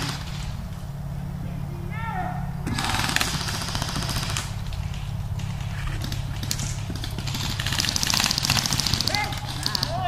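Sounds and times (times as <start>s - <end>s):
airsoft guns firing bursts: 0.0s - 0.5s, 2.6s - 10.0s
steady low rumble: 0.0s - 10.0s.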